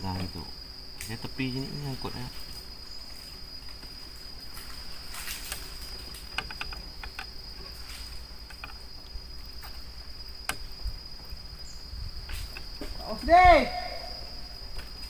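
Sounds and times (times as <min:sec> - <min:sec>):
insects trilling: 0:00.0 - 0:15.0
sharp clicks: 0:05.4 - 0:07.8, 0:08.4 - 0:09.8, 0:10.4 - 0:10.9.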